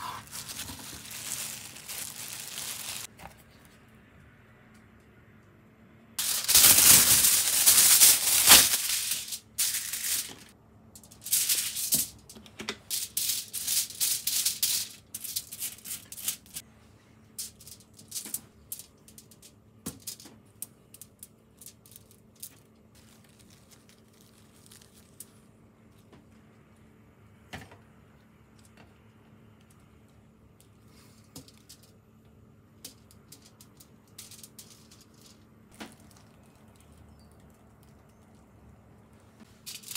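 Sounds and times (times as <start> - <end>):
aluminium foil crinkling: 0.0 - 3.1, 6.2 - 16.6, 17.4 - 26.1, 32.9 - 38.5, 39.6 - 39.9.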